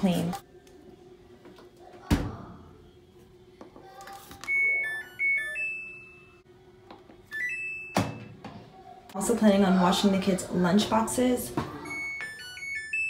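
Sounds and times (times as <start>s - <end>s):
washing machine panel beeping: 4.5s - 6.4s, 7.3s - 8.4s, 11.8s - 13.0s.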